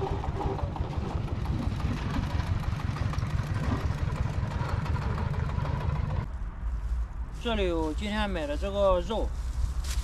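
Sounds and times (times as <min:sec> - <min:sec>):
small engine idling: 0:00.0 - 0:06.3.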